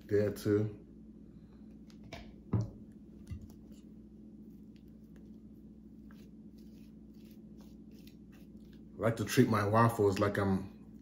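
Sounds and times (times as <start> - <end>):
knife spreading on a waffle: 3.6 - 8.9.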